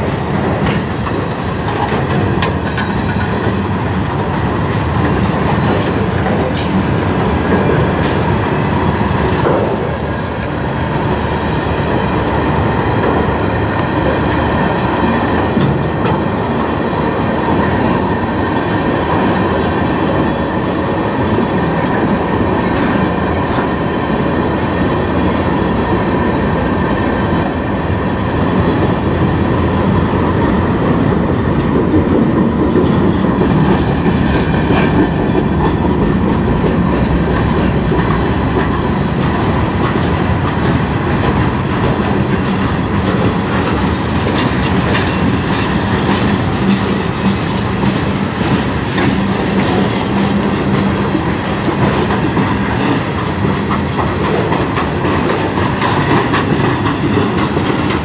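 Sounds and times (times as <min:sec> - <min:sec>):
steel wheels rumbling on rail: 0:00.0 - 0:58.0.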